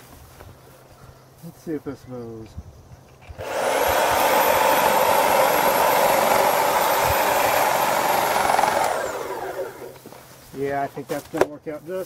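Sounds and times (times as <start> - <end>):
hedge trimmer whining: 3.4 - 10.2
blades cutting wheat stalks: 3.4 - 11.3.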